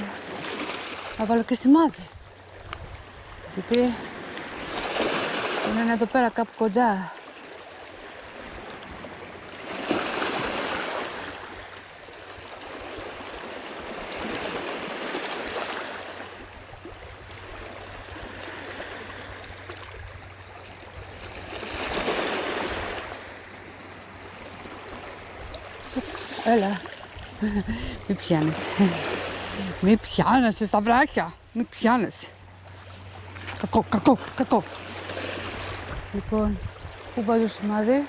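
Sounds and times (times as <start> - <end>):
waves washing over pebbles: 3.2 - 6.0, 8.0 - 20.4, 21.1 - 23.4.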